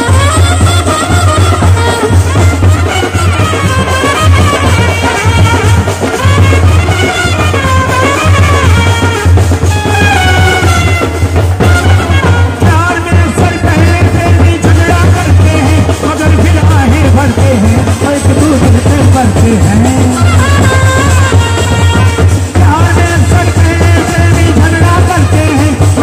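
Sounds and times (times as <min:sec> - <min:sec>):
brass horns playing melody: 0:00.0 - 0:14.0, 0:19.7 - 0:26.0
bass drums beating: 0:00.0 - 0:26.0.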